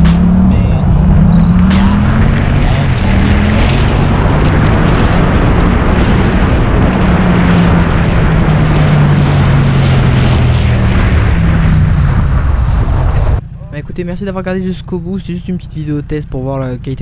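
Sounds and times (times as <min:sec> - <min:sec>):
wind noise on microphone: 0:00.0 - 0:13.4
motorcycle engine running: 0:00.0 - 0:17.0.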